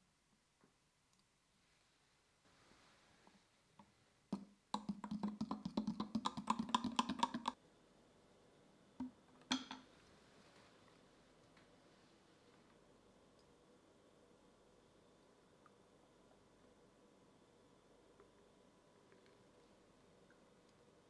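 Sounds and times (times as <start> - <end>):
spoon clinking against glass jug: 9.5 - 9.9.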